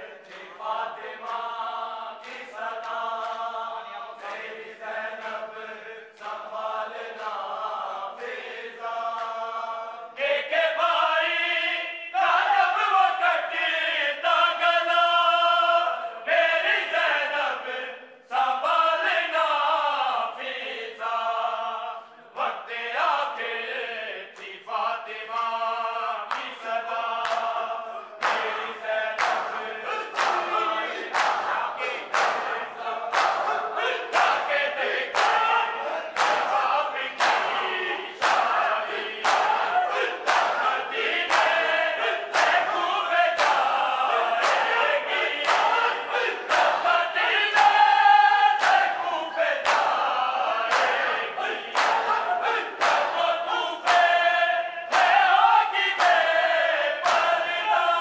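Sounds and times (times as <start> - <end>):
men chanting in unison: 0.0 - 58.0
chest-beating slaps: 28.2 - 28.6, 29.2 - 41.7, 42.3 - 42.7, 44.4 - 44.8, 45.4 - 46.8, 50.7 - 51.0, 51.6 - 53.2, 57.0 - 57.3.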